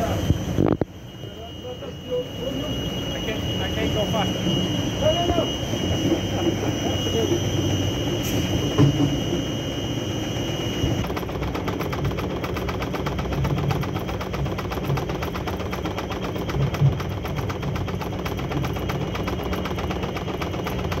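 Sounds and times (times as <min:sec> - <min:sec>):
high whine: 0:00.0 - 0:11.1
low machine hum: 0:00.0 - 0:21.0
machine paddles rattling: 0:11.0 - 0:21.0.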